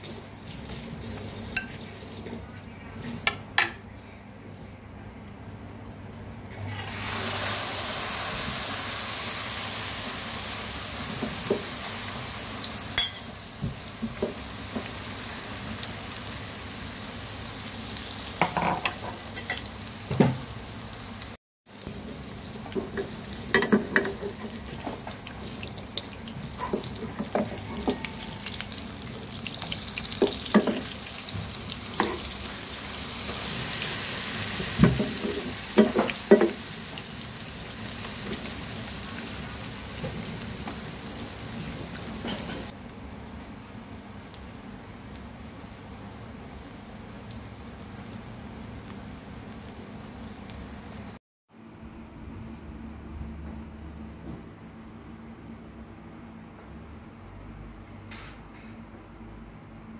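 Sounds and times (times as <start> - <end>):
hot oil sizzling: 6.7 - 51.2
spatula knocking and scraping pan: 22.7 - 25.2, 32.0 - 32.3, 34.8 - 36.6.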